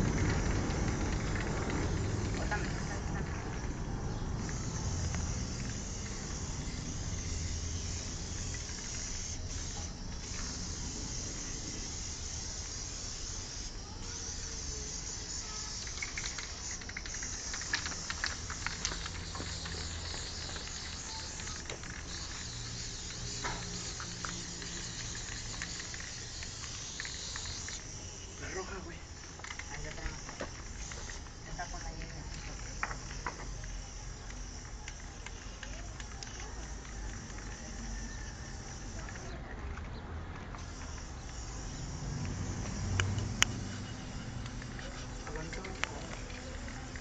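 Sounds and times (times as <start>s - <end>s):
spray can hissing: 0.0s - 39.4s, 40.5s - 47.0s
sharp clicks: 11.4s - 28.0s, 29.1s - 47.0s.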